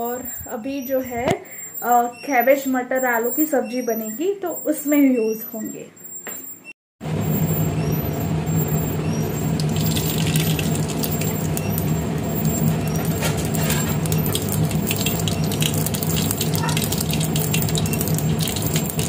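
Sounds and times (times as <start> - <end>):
steady low hum: 0.0 - 2.2, 7.0 - 19.0
seeds crackling in hot oil: 9.4 - 19.0.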